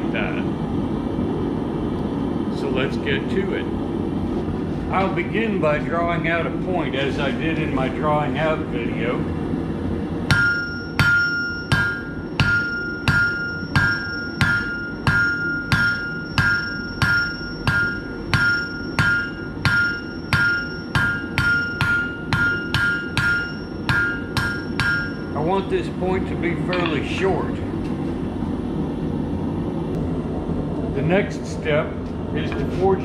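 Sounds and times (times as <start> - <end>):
anvil ringing: 10.3 - 25.4, 26.7 - 27.1
hammer striking hot steel: 10.3 - 25.5, 26.7 - 27.1.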